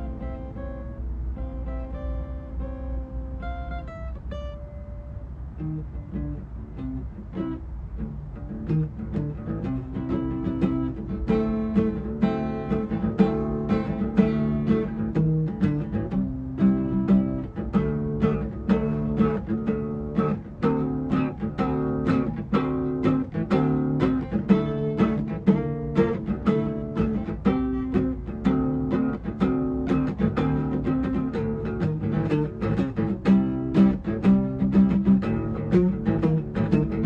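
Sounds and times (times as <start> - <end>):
acoustic guitar plucked chords: 0.0 - 37.0.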